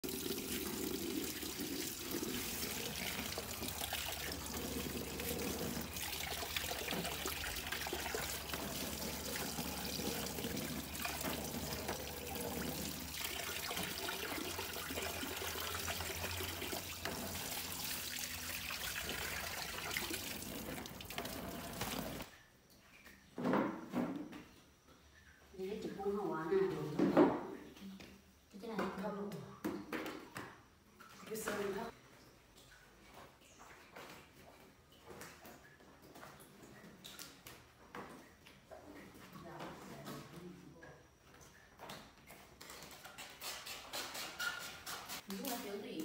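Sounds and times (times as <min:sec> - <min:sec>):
tap water splashing into basin: 0:00.0 - 0:23.6.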